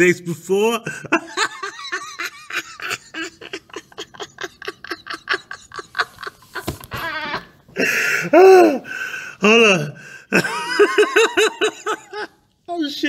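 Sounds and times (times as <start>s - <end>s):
man laughing hard: 0.9s - 8.8s, 10.3s - 12.4s.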